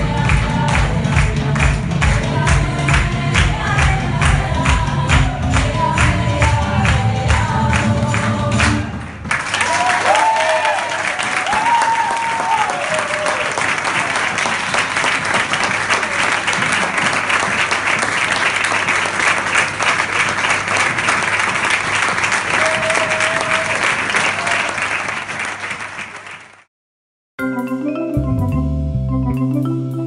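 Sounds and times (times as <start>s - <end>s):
audience applauding: 7.7s - 26.7s.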